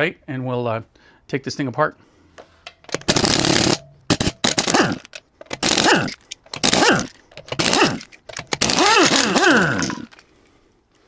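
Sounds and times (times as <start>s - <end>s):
pneumatic impact wrench bursts: 2.9s - 10.2s.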